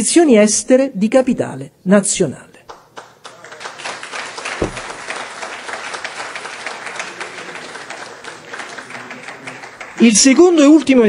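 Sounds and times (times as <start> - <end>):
audience applauding: 2.7 - 11.0
low thump: 4.6 - 5.2.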